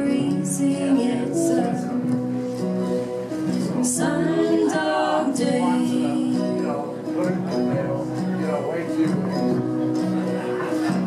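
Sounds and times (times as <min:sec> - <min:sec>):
woman singing: 0:00.0 - 0:02.2, 0:03.6 - 0:06.9
acoustic guitar strummed and picked: 0:00.0 - 0:11.0.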